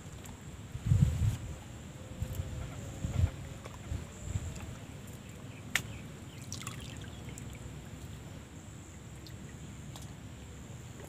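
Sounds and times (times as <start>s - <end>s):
water trickling and lapping: 2.2s - 11.0s.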